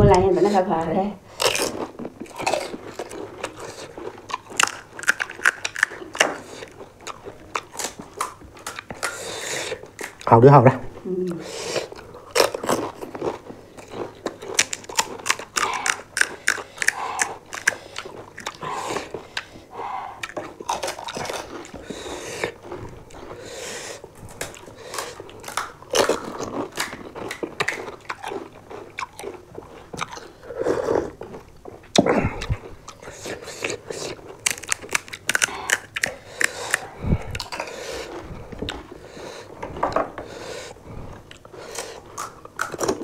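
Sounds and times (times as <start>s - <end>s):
crisp shells crunching: 1.3s - 9.1s, 12.1s - 19.4s, 32.6s - 39.0s
chewing: 1.3s - 10.3s, 11.2s - 43.0s.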